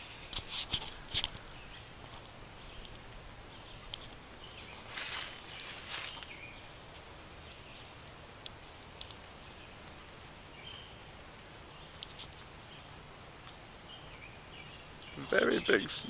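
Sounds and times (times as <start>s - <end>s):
leaves rustling: 0.0s - 16.0s
bird chirps: 1.0s - 6.8s, 7.4s - 13.0s, 13.8s - 16.0s
sharp clicks: 8.4s - 9.2s.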